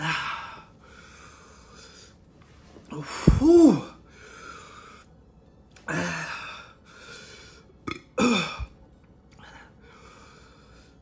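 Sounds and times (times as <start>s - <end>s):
man groaning in pain: 3.0s - 4.0s.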